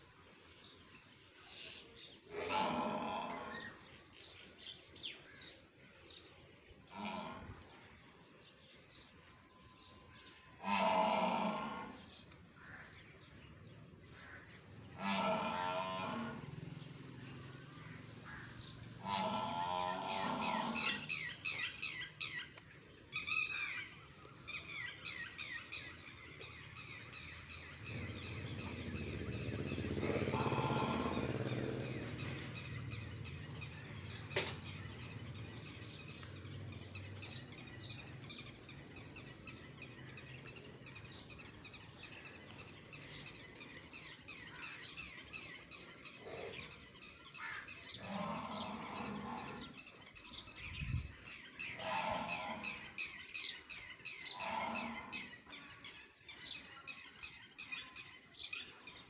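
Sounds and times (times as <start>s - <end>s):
birds chirping: 0.0s - 59.0s
cattle mooing: 10.6s - 12.0s, 15.0s - 16.6s, 19.0s - 21.1s, 29.9s - 31.9s, 47.9s - 49.8s, 51.8s - 53.0s, 54.3s - 55.3s.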